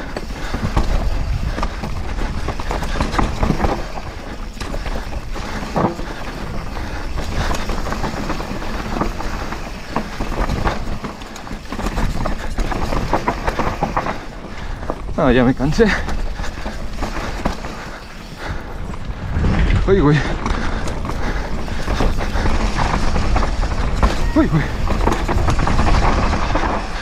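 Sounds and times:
bike knocking and rattling: 0.0s - 27.0s
tyres crunching over rock: 0.2s - 27.0s
wind rumble on microphone: 18.6s - 27.0s.

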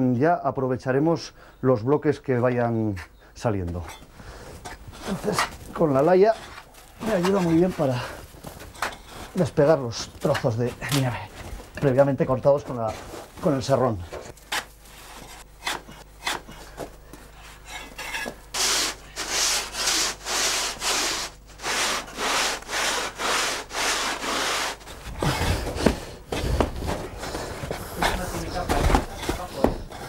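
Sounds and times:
scrapes: 3.7s - 30.0s
saw rasping through snow: 5.0s - 8.2s, 17.4s - 25.6s.

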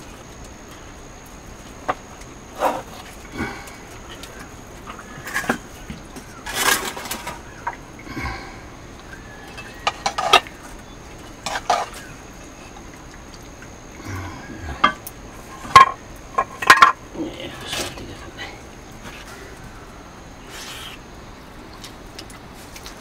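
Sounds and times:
metal ladle scraping a wok: 9.6s - 10.5s, 11.4s - 12.0s.

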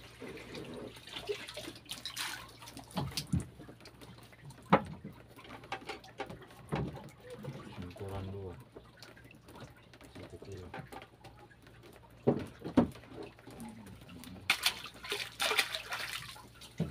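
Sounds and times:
water splashing and sloshing: 0.0s - 16.9s
sharp knocks and thuds: 12.2s - 13.1s
faint low hum: 13.3s - 16.9s.

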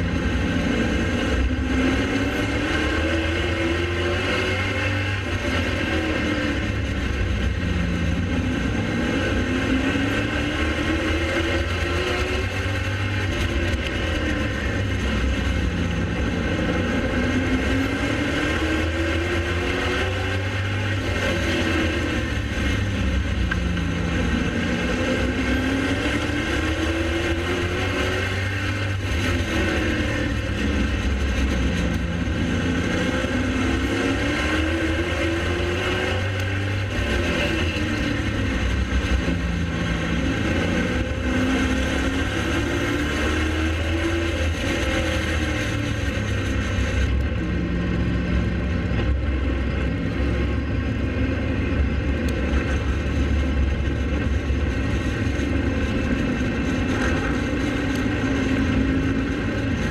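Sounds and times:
race car engine revving: 0.0s - 59.9s
steady low rumble: 45.7s - 59.9s.

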